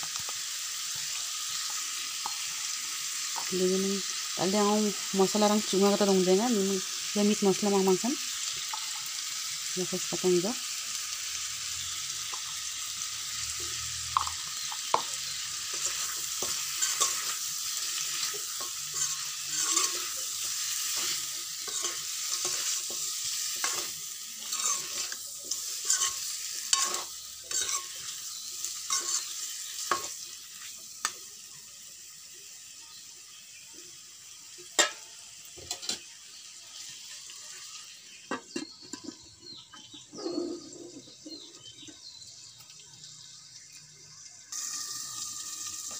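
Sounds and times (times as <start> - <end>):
meat sizzling in a wok: 0.0 - 45.9
metal spoon scraping a pan: 13.6 - 30.8.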